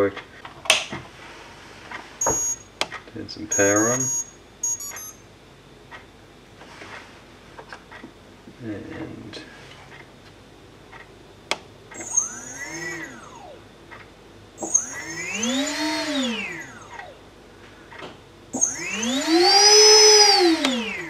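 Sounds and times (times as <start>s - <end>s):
electric motor whine: 12.0s - 13.7s, 14.6s - 17.3s, 18.6s - 21.0s.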